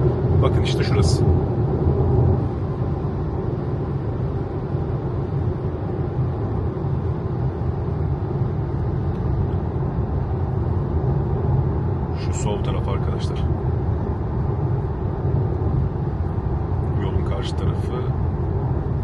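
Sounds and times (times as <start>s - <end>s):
wind noise over car body: 0.0s - 12.1s.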